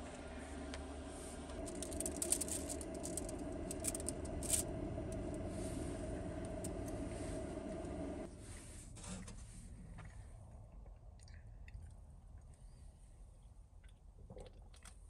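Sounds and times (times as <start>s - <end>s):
steady motor hum: 0.0s - 8.7s.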